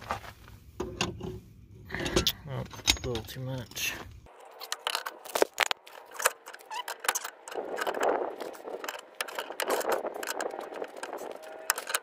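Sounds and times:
rough rustling noise: 0:04.2 - 0:12.0.

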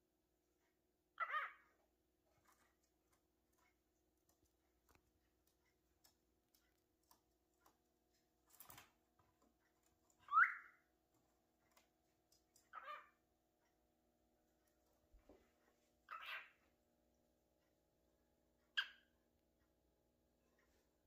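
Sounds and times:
cockatiel whistling: 0:10.2 - 0:10.8.

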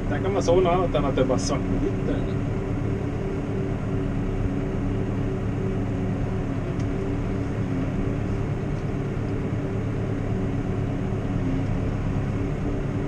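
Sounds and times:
tractor diesel engine droning: 0:00.0 - 0:13.0.

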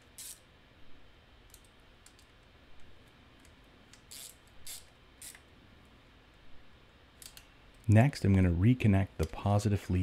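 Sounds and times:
socket ratchet clicking: 0:03.9 - 0:05.4.

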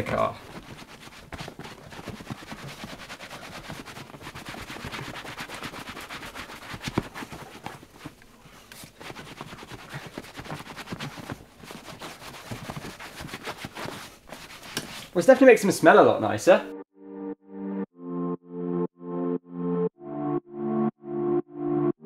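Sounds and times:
cloth scrubbing on leather: 0:00.1 - 0:08.2, 0:08.8 - 0:15.2.

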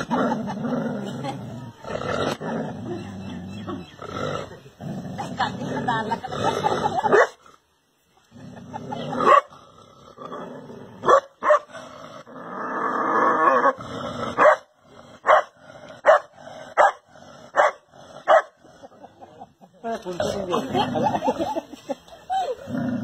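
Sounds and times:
dog barking: 0:11.1 - 0:11.7, 0:14.4 - 0:17.0, 0:17.6 - 0:18.5.

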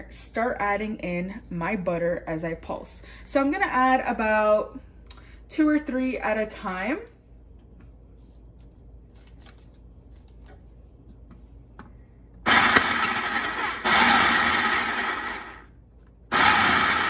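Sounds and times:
food processor motor chopping: 0:12.5 - 0:15.6, 0:16.3 - 0:17.0.

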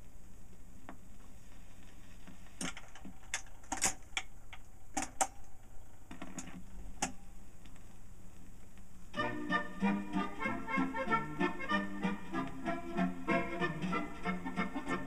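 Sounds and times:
record changer clicks and clunks: 0:02.6 - 0:07.8.

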